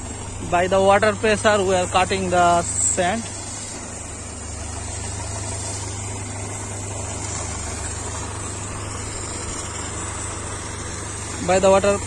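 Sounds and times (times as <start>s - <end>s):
water jet hissing into sand: 0.0s - 12.0s
water pump humming: 0.0s - 12.0s.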